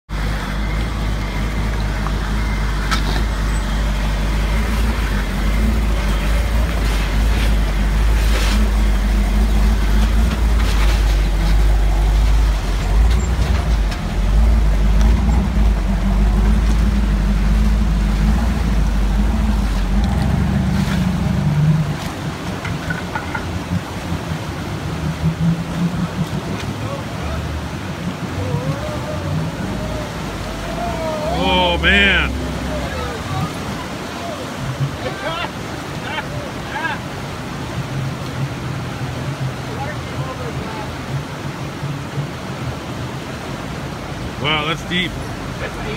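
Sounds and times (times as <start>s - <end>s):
engine rumbling at low revs: 0.0s - 45.9s
creek water rushing: 0.1s - 45.9s.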